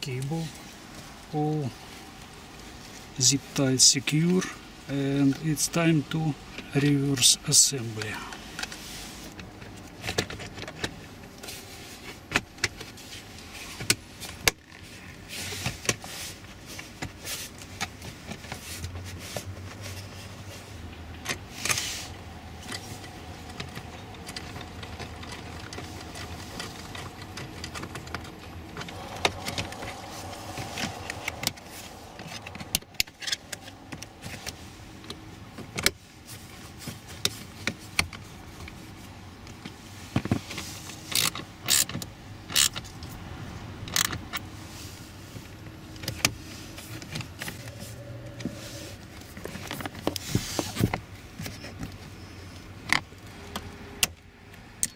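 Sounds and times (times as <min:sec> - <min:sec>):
steady low hum: 0:20.4 - 0:39.0, 0:45.9 - 0:50.4.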